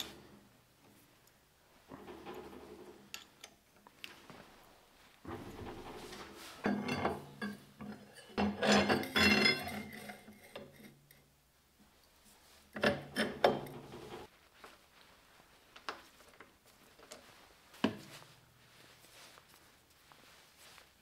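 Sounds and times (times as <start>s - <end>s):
metal parts scraping and clattering: 5.3s - 10.9s.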